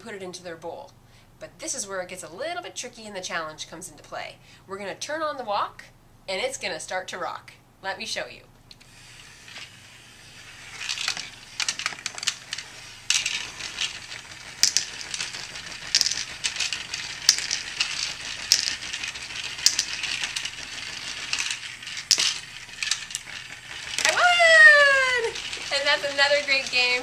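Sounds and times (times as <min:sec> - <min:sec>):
plastic food pieces rattling: 0:10.4 - 0:27.0.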